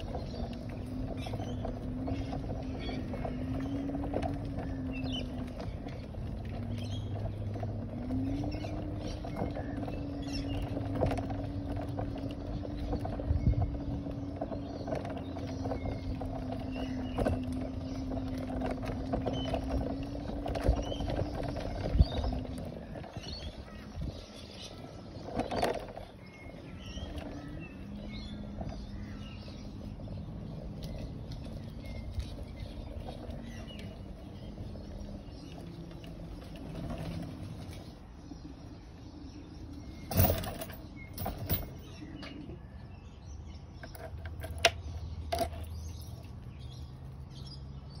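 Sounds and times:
small birds chirping: 0:00.0 - 0:48.0
sharp knocks and rattles: 0:39.8 - 0:42.4.

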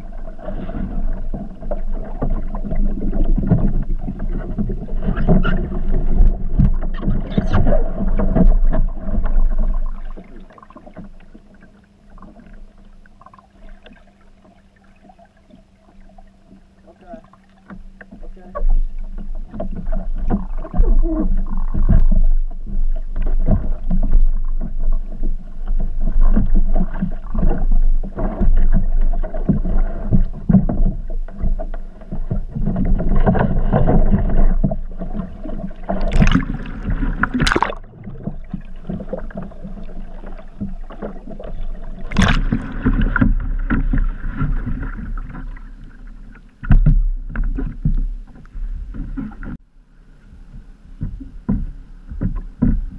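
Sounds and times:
water sloshing underwater: 0:00.0 - 0:52.9
splashing at the surface: 0:35.9 - 0:45.5
sharp knocks on kayak: 0:42.0 - 0:45.4, 0:46.6 - 0:49.6.

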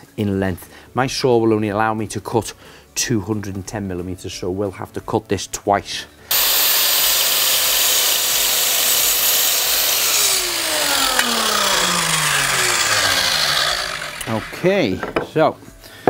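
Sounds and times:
chop saw cutting wood: 0:06.3 - 0:14.9
saw blade winding down: 0:06.3 - 0:14.9.

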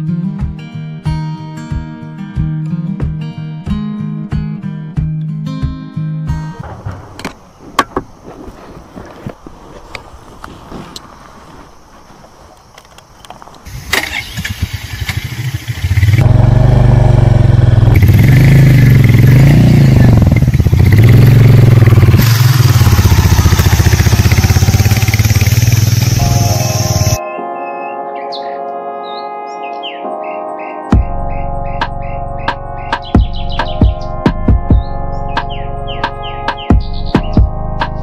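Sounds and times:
motorcycle engine revving: 0:13.7 - 0:27.2.

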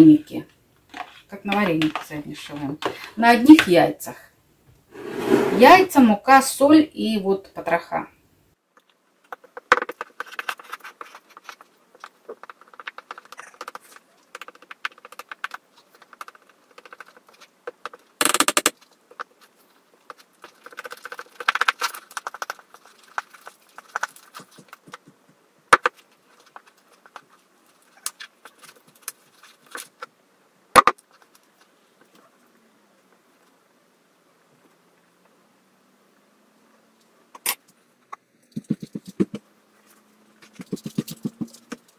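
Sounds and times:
spoon scraping plastic bowl: 0:05.0 - 0:05.9
hand kneading dough: 0:19.0 - 0:30.0, 0:38.4 - 0:39.4, 0:40.4 - 0:41.9.

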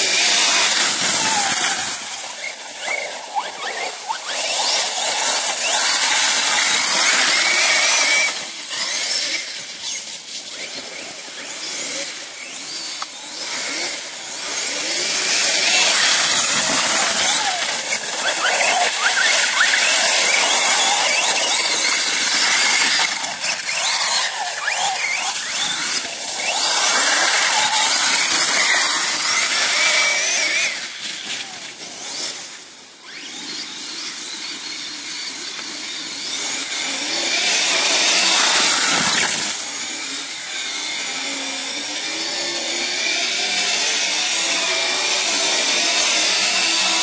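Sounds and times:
toy car motor whine: 0:00.0 - 0:47.0.

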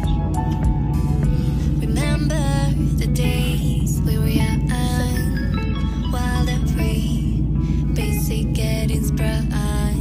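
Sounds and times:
background music melody: 0:00.0 - 0:10.0.

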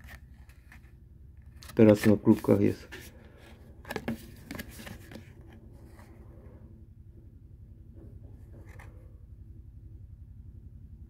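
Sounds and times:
cardboard card rustling and tapping: 0:00.0 - 0:06.1
faint low hum: 0:00.0 - 0:11.0.

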